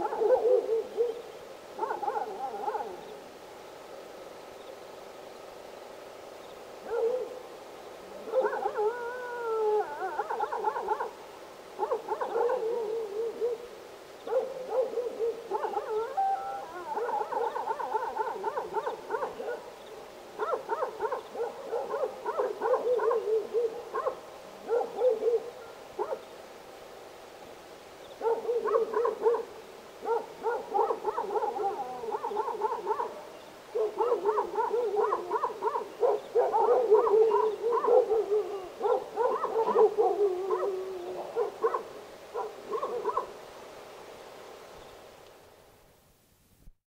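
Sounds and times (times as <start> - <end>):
dogs barking and howling: 0.0 - 1.2, 1.8 - 3.0, 6.8 - 7.4, 8.2 - 11.2, 11.8 - 13.7, 14.3 - 19.7, 20.4 - 26.2, 28.2 - 43.4.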